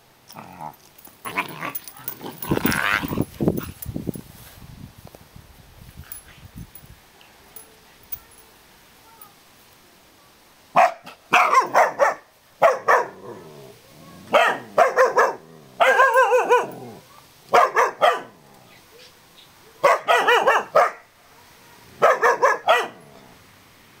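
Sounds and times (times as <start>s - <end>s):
puppy barking: 10.8s - 13.2s, 14.3s - 16.9s, 17.5s - 18.4s, 19.8s - 21.1s, 22.0s - 23.0s.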